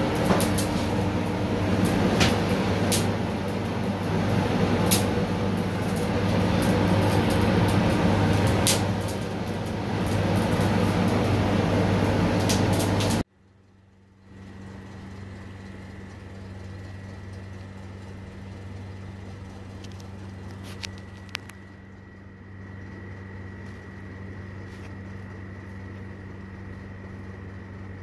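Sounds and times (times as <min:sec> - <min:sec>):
loud mechanical drone: 0:00.0 - 0:13.3
steady hum with high whine: 0:00.0 - 0:28.0.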